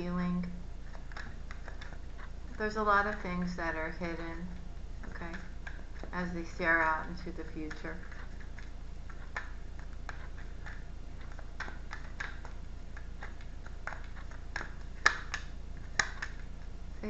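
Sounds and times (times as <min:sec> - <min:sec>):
cards shuffling: 0:07.1 - 0:16.7.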